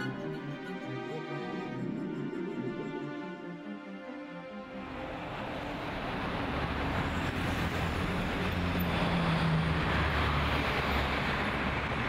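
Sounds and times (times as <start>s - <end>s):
truck passing by: 4.7s - 12.0s
busy highway traffic noise: 4.8s - 12.0s.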